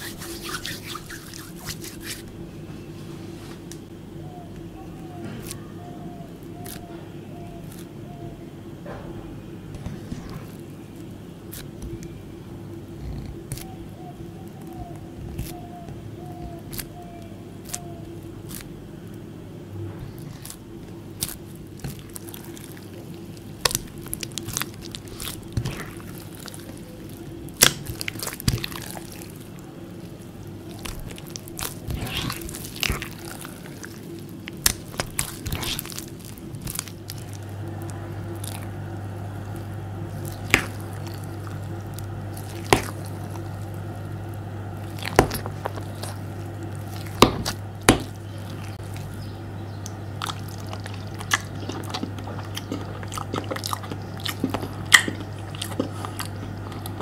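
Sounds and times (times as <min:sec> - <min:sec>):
spoon scooping slime: 0:00.0 - 0:02.3, 0:21.2 - 0:44.1, 0:44.8 - 0:49.2
fingers squishing wet slime: 0:00.0 - 0:02.4, 0:05.4 - 0:06.9, 0:13.1 - 0:13.8, 0:14.4 - 0:18.7, 0:20.1 - 0:57.0
steady low hum: 0:00.0 - 0:57.0.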